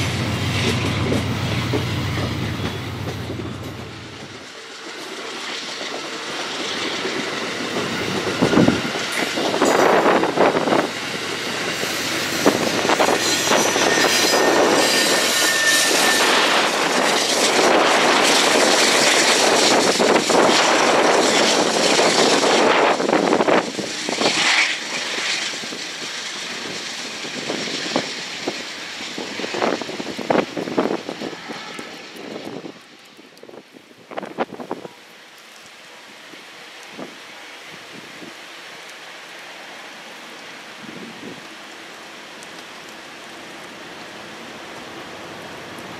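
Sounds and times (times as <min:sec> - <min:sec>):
train wheels rattling on rail: 0:00.0 - 0:34.9
high wheel squeal: 0:11.8 - 0:17.3.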